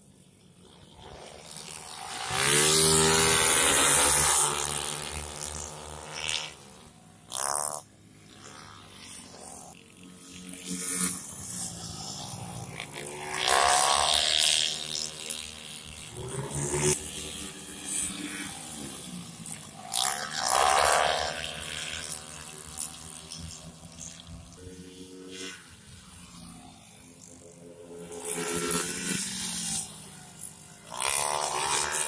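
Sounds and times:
racing motorcycles passing by: 0.0 - 32.0.

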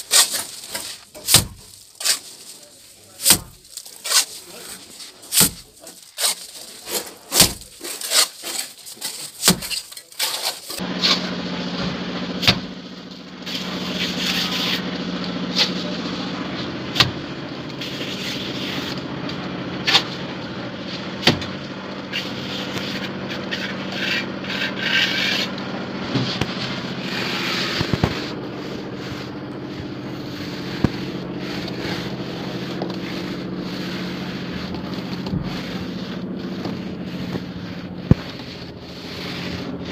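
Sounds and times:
plaster scraping: 0.0 - 12.7, 13.4 - 39.9
steady motor hum: 10.8 - 39.9.

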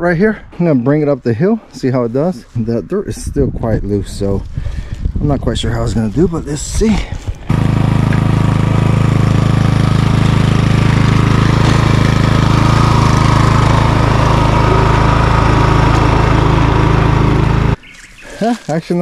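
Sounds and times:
lawn mower engine running: 7.2 - 17.8.

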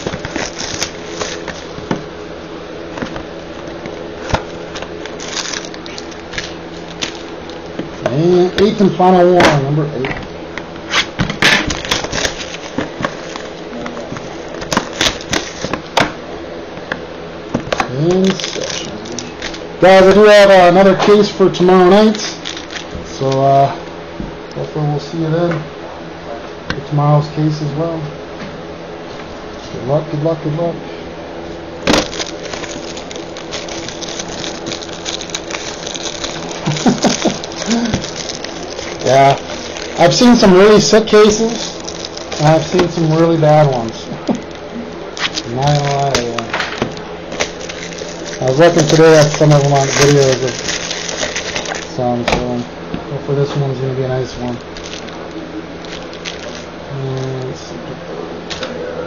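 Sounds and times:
wrapper and cardboard tearing: 0.0 - 1.8, 3.0 - 7.7, 10.9 - 13.6, 14.2 - 15.8, 17.8 - 19.6, 22.0 - 22.9, 31.8 - 44.0, 45.2 - 52.0, 54.7 - 57.5
faint steady hum: 0.0 - 59.0.

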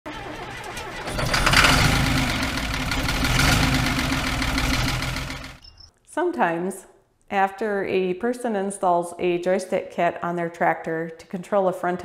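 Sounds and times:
engine running: 0.1 - 5.6.

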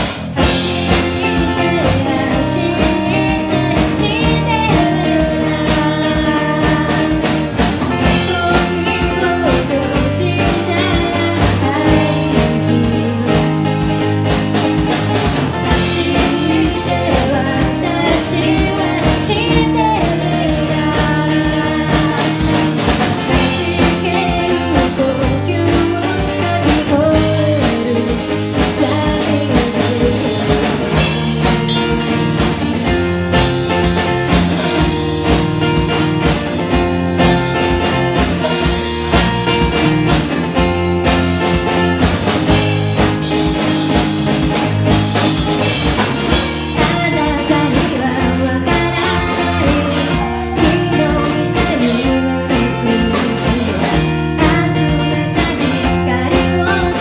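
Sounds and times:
drum kit: 0.0 - 57.0
electric bass: 0.0 - 57.0
woman singing: 0.5 - 14.4, 15.5 - 33.0, 45.6 - 57.0.

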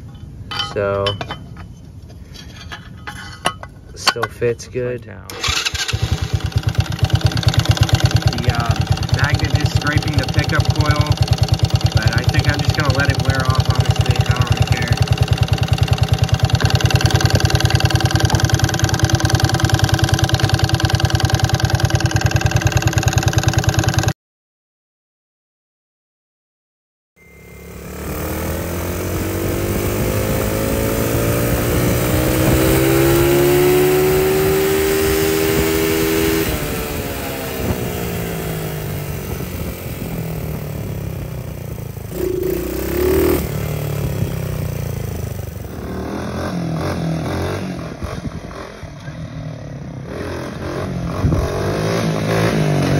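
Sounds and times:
small engine accelerating: 5.3 - 24.1, 27.2 - 49.2, 50.0 - 52.9
headlight rattling: 5.4 - 22.5.

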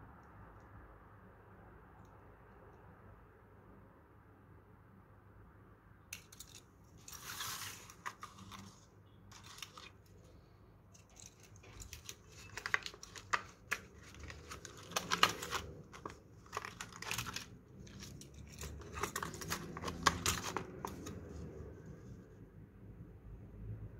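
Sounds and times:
plastic packaging crinkling: 6.2 - 10.3, 11.0 - 21.5.

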